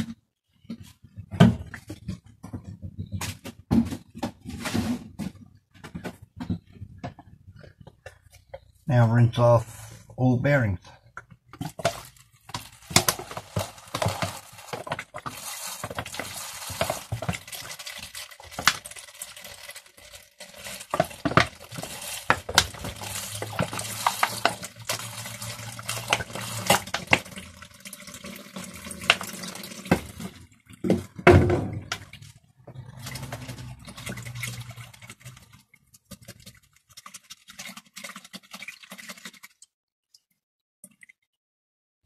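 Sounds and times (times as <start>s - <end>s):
water splashing over ball bearings: 11.5s - 41.3s.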